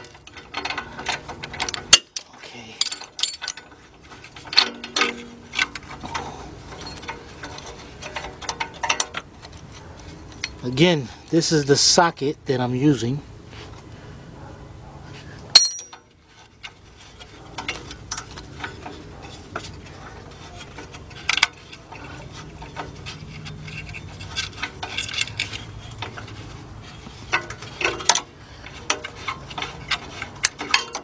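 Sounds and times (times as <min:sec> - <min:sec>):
metal hand tools clinking: 0:02.7 - 0:03.7, 0:15.5 - 0:16.1.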